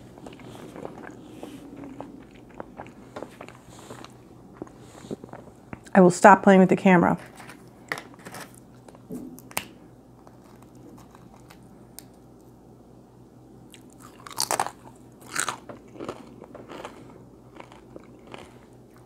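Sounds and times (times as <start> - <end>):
crunchy chewing bites: 13.7 - 19.0.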